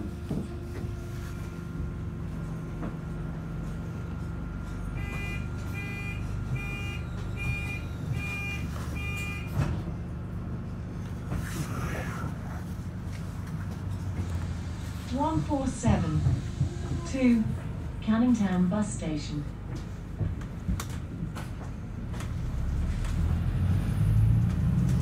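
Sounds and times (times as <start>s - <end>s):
bus engine idling: 0.0s - 25.0s
bus doors closing clunk: 1.8s - 18.6s, 19.2s - 25.0s
door warning beeps: 5.0s - 9.6s.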